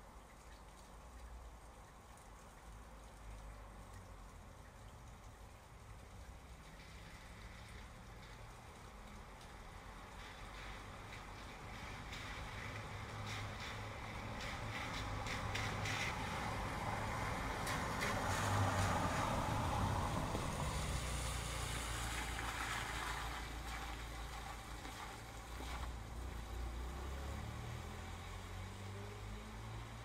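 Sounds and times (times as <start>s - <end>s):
dripping water: 0.0s - 30.0s
steady rain: 0.0s - 30.0s
car tyres hissing on wet road: 6.6s - 30.0s.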